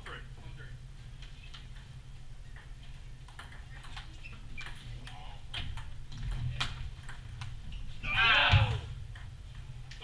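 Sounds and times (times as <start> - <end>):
ping pong ball clicking: 2.5 - 7.6.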